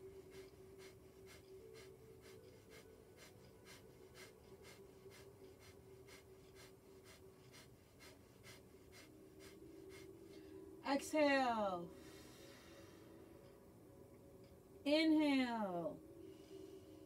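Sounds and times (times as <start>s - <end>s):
rapid forceful nose breaths: 0.0s - 10.8s
steady low hum: 0.0s - 17.0s.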